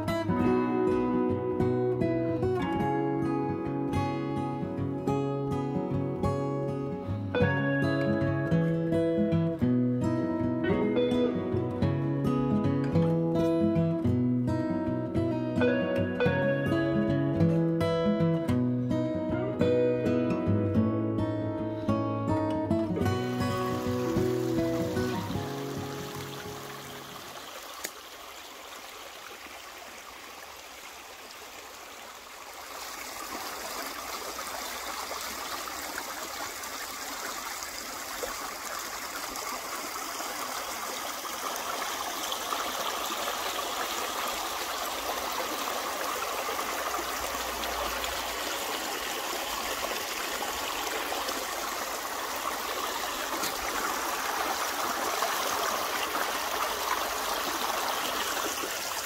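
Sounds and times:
stream rippling over stones: 23.0s - 59.0s.

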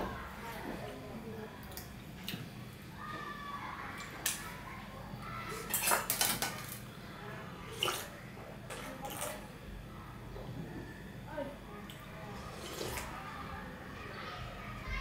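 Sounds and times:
person slurping: 12.5s - 13.1s.

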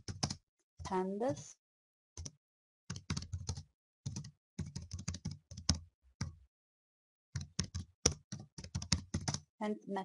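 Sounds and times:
typing on computer keyboard: 0.0s - 1.0s, 2.2s - 6.4s, 7.4s - 9.5s.

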